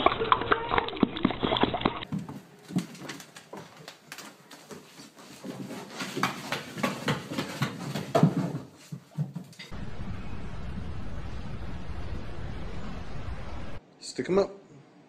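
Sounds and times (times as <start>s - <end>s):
puppy claws tapping on wooden stairs: 5.5s - 9.6s.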